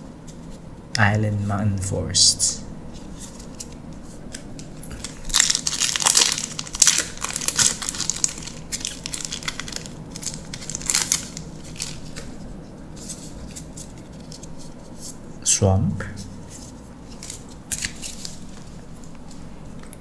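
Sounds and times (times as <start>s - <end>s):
cards rustling: 3.0s - 12.4s, 16.5s - 19.4s
foil wrapper crinkling and tearing: 3.6s - 12.3s, 17.1s - 18.6s.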